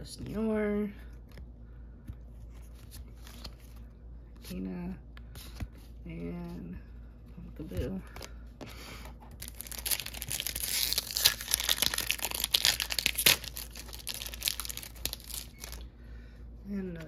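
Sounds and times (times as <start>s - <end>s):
foil wrapper crinkling and tearing: 9.4s - 15.8s.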